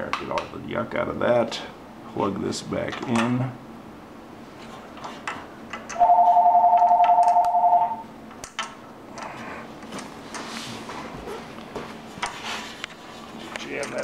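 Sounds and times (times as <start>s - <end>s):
electronic telephone ringer trilling: 6.0s - 8.1s.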